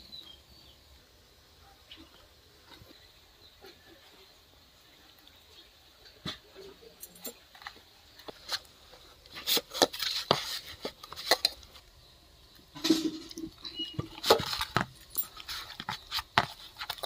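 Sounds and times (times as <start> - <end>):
hand mixing batter in bowl: 7.7 - 17.0.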